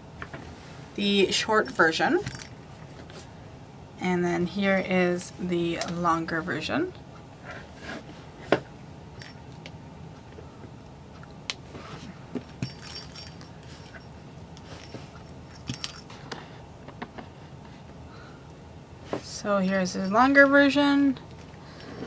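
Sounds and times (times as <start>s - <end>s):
small jingle bell jingling: 12.6s - 16.2s.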